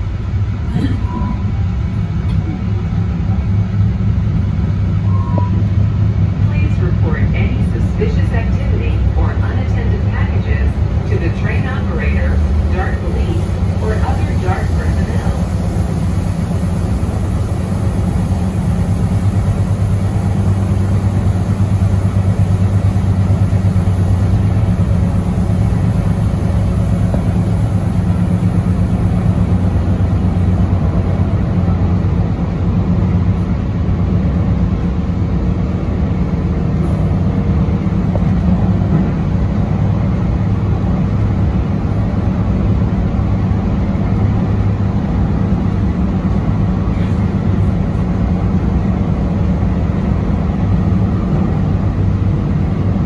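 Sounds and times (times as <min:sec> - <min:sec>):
light rail train rumbling: 0:00.0 - 0:53.0.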